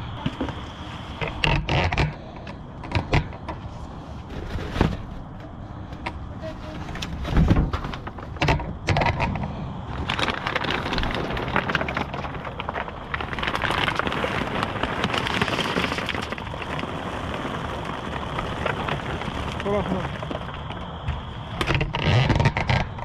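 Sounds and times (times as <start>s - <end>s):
dry kibble rustling in bag: 9.9s - 21.6s.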